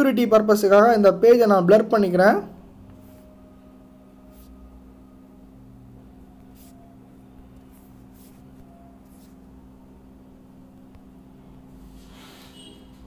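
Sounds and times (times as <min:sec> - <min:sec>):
steady low hum: 0:00.0 - 0:13.0
soft short hisses: 0:11.8 - 0:13.0.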